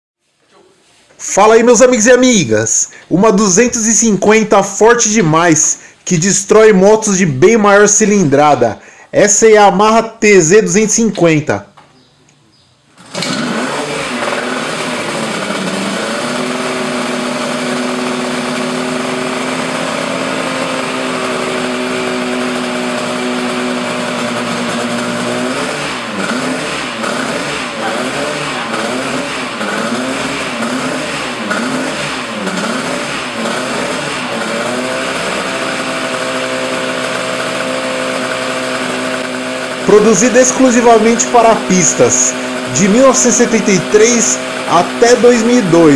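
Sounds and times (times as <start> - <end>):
two-stroke motorcycle engine revving: 13.0 - 45.9.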